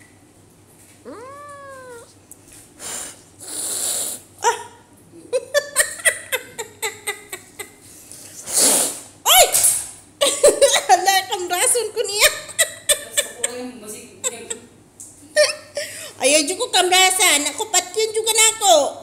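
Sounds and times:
cat hissing: 0:01.1 - 0:02.1, 0:02.8 - 0:04.3, 0:08.4 - 0:09.1
cat meowing: 0:01.1 - 0:02.1.

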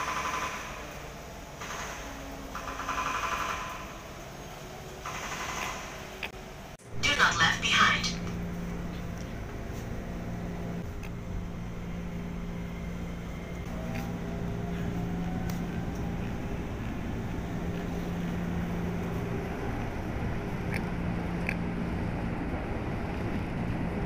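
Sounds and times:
train hum and rumble: 0:00.0 - 0:24.0
faint rising whine: 0:05.9 - 0:24.0.

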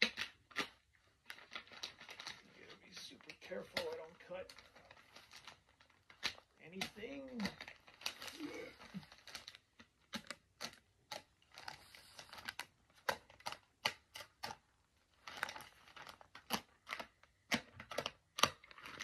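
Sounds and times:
plastic crinkling: 0:00.0 - 0:19.0
tool snipping plastic: 0:10.0 - 0:11.8, 0:12.5 - 0:14.6, 0:15.4 - 0:19.0.

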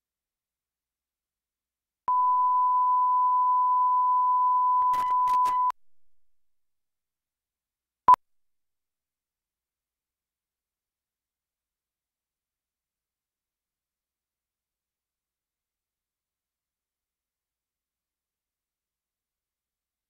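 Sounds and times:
short beep: 0:02.1 - 0:05.8.

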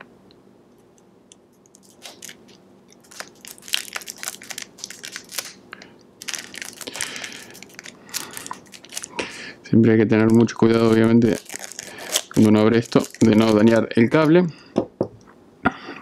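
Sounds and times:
plastic wrapping crinkling: 0:01.6 - 0:09.5, 0:10.1 - 0:14.3.

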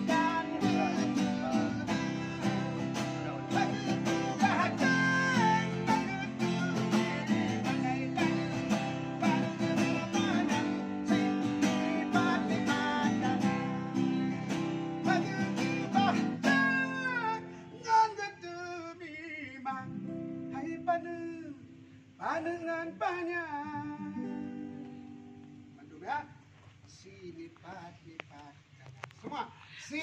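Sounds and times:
acoustic guitar strumming: 0:00.0 - 0:18.3, 0:19.6 - 0:25.8
person singing: 0:00.0 - 0:19.9.

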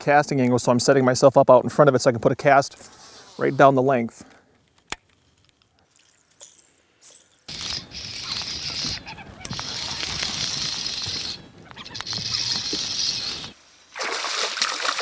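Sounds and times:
high-pitched insect buzzing: 0:05.9 - 0:13.6.

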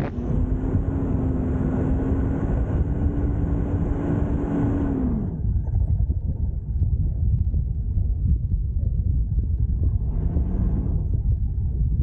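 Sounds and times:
car engine pulling hard: 0:00.0 - 0:06.7, 0:09.0 - 0:12.0.

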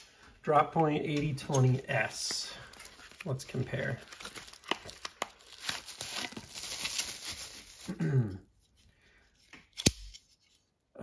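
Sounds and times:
rustling and crinkling: 0:01.1 - 0:07.9.

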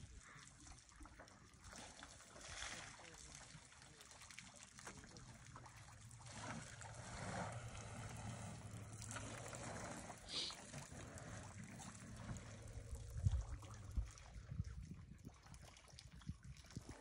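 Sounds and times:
water trickling and lapping: 0:00.0 - 0:17.0
low hum: 0:05.3 - 0:15.3.

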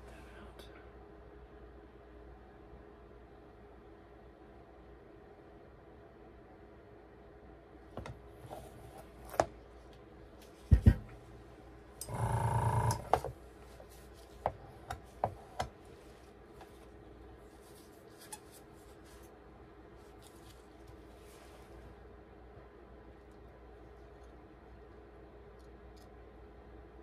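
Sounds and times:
heavy thumps: 0:10.6 - 0:11.3.

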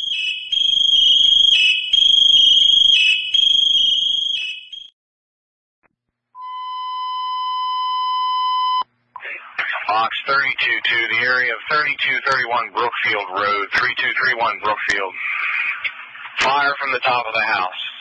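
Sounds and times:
electronic fire alarm pulses: 0:00.0 - 0:05.0, 0:06.4 - 0:08.9.

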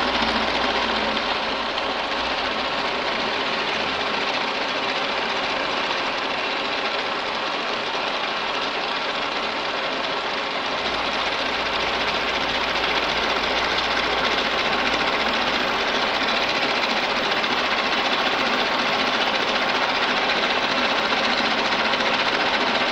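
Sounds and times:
milling machine cutting metal: 0:09.4 - 0:22.9.

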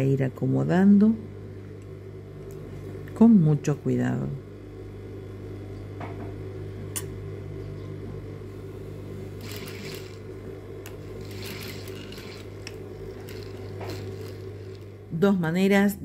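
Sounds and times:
sewing machine motor humming: 0:08.7 - 0:15.2.

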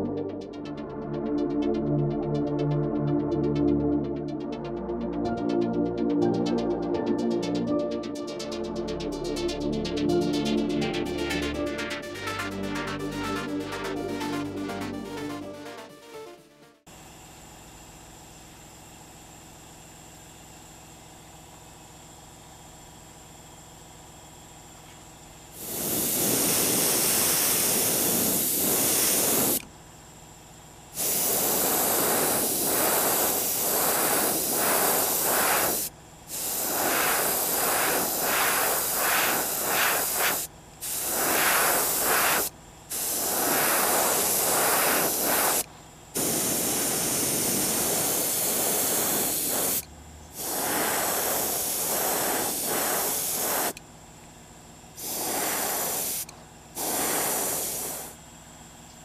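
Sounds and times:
airbrush spraying hiss: 0:25.6 - 0:29.6, 0:31.0 - 0:53.8, 0:55.0 - 0:58.2.

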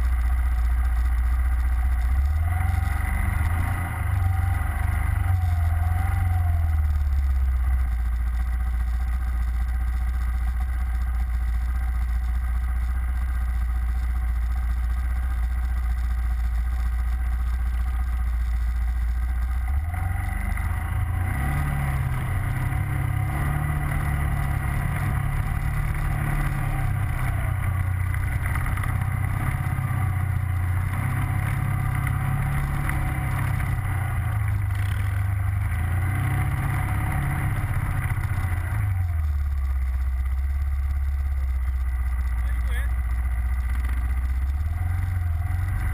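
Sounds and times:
quad bike engine droning: 0:00.0 - 0:45.9.

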